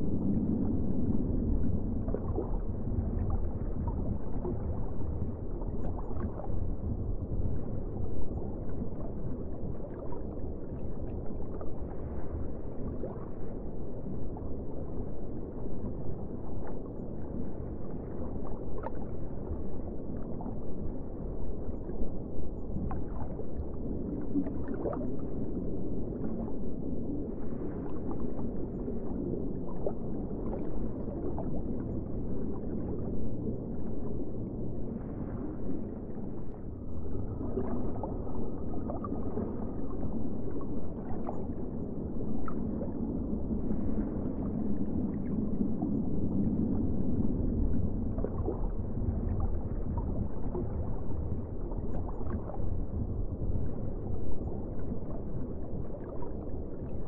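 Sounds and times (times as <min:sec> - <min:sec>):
faint bubbling gurgles: 0:00.0 - 0:57.0
underwater rush of water: 0:22.6 - 0:57.0.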